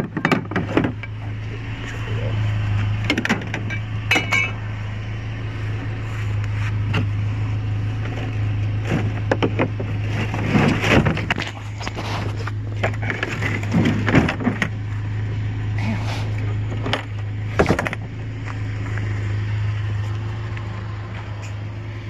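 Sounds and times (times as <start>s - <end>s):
steady low hum: 0.0s - 22.0s
ringing clink: 3.7s - 4.6s.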